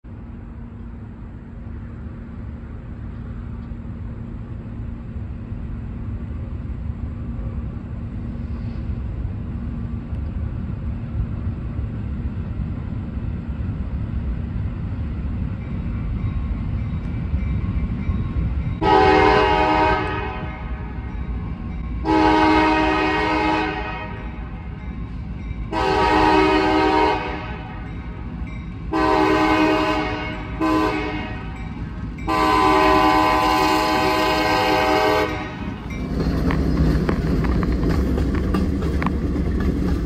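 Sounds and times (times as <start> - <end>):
diesel locomotive rumble: 0.0 - 40.0
locomotive horn blast: 18.8 - 21.1, 22.0 - 24.5, 25.7 - 27.9, 28.9 - 35.8.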